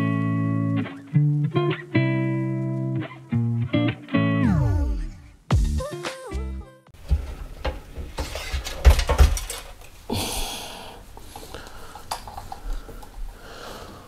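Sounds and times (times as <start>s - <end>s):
computer parts knocking against case: 7.0s - 9.8s.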